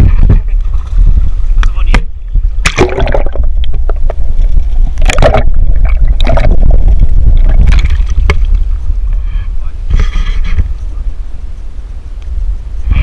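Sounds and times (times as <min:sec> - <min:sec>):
constant low rumble: 0:00.0 - 0:13.0
seawater sloshing and gurgling: 0:02.6 - 0:08.8
water splashes: 0:02.6 - 0:08.8.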